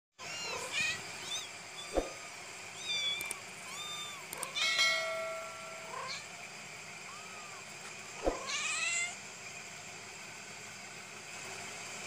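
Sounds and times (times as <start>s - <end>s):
kittens mewing: 0.2s - 4.9s, 5.9s - 6.3s, 7.0s - 9.2s
steady cat call: 7.0s - 7.7s.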